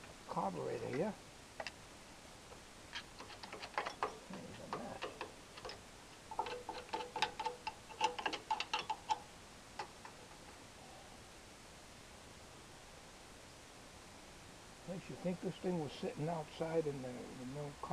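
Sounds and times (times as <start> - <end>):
screwdriver clicking and scraping metal: 2.9 - 9.2.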